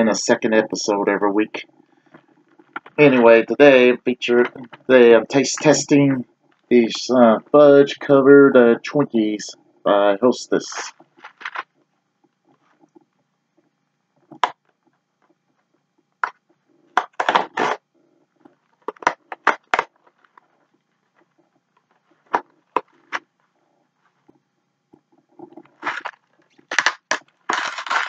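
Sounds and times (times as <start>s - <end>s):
cardboard box being torn open: 26.7s - 28.0s.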